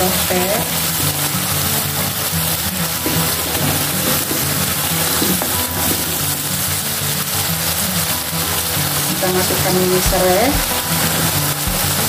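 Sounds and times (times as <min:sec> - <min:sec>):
spice paste sizzling in a wok: 0:00.0 - 0:12.0.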